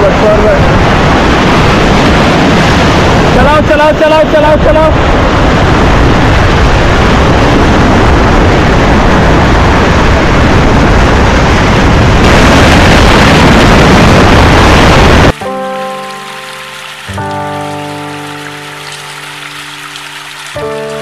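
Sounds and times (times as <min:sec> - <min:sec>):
river rapids roaring: 0:12.3 - 0:21.0
music: 0:15.4 - 0:21.0.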